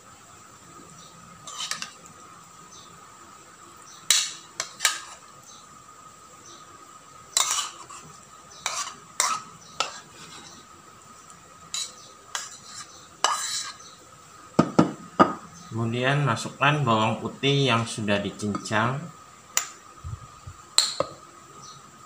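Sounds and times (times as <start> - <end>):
metal spoon scraping plastic bowl: 1.5 - 2.0, 7.4 - 10.6, 11.7 - 13.9.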